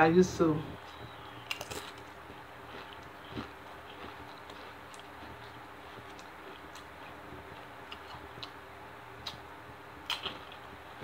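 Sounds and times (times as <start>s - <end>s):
chip being crunched in mouth: 1.5s - 6.9s.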